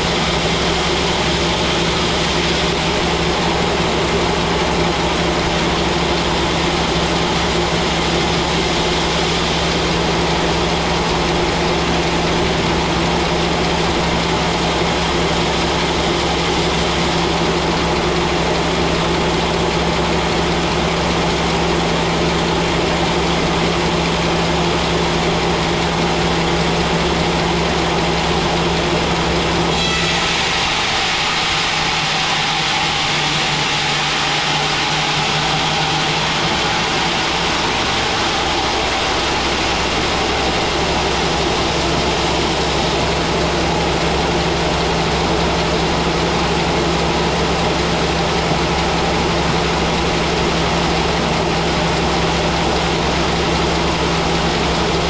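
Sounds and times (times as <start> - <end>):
band saw drone: 0.0 - 55.0
band saw blade cutting wood: 29.7 - 43.7.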